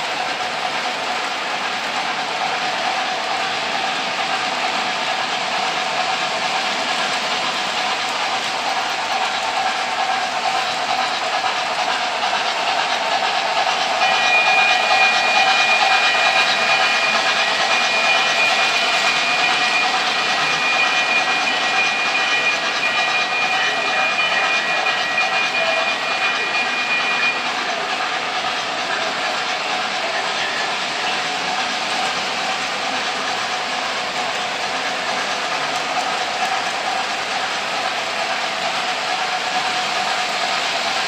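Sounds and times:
model train wheels rattling: 0:00.0 - 0:41.0
steady high whine: 0:02.4 - 0:34.9.

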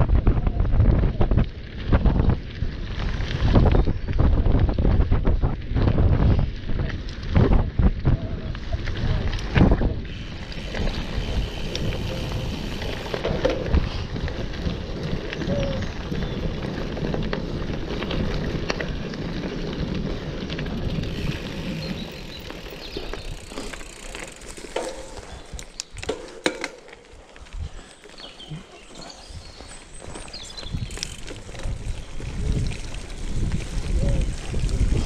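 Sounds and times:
wind on microphone: 0:00.0 - 0:24.0, 0:27.4 - 0:35.0
bike rattling: 0:00.0 - 0:35.0
bike tyres rumbling on dirt: 0:00.0 - 0:35.0
sharp clicks and knocks: 0:24.6 - 0:27.1.

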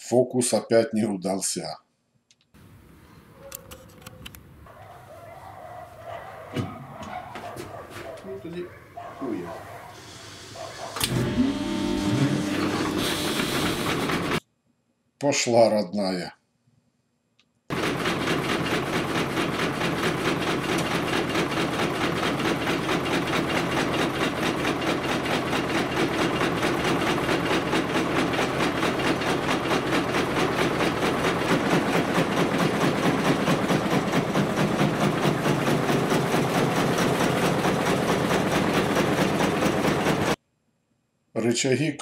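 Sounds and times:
gang saw running: 0:10.0 - 0:14.4, 0:17.7 - 0:40.4.

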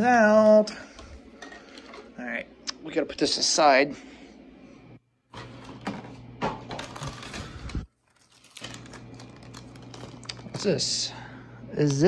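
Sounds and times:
faint steady hum: 0:00.0 - 0:12.0
items clicking and knocking in drawer: 0:05.3 - 0:10.8.

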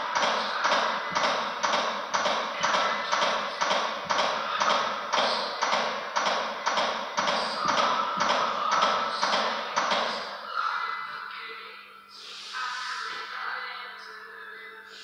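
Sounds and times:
chest compression taps: 0:00.0 - 0:10.2.

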